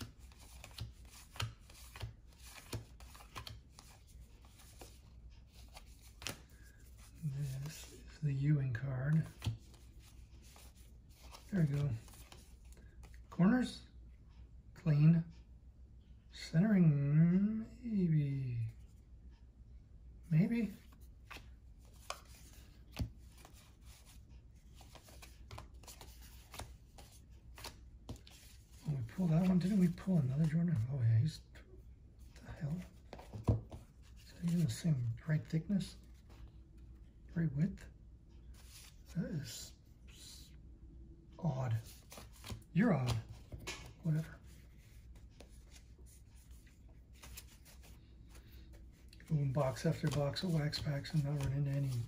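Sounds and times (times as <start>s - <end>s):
trading cards flipped: 0.0s - 7.9s, 21.3s - 24.2s, 24.8s - 30.8s, 41.8s - 52.0s.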